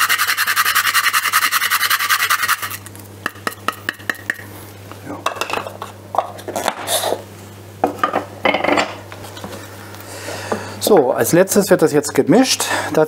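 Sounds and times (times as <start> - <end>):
nutmeg mill grinding: 0.0 - 3.6.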